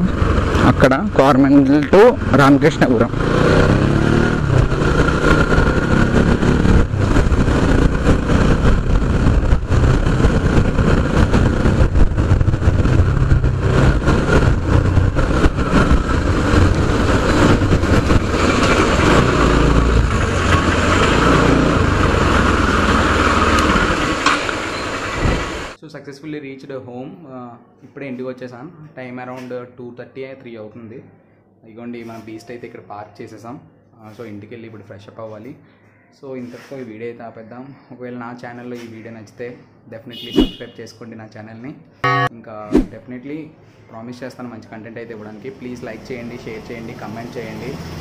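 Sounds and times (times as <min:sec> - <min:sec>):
motorcycle engine running: 0:00.0 - 0:24.8.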